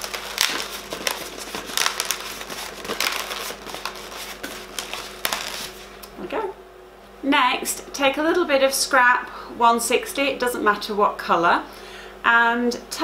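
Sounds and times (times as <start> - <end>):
balloons rubbing together: 0.0 - 6.0.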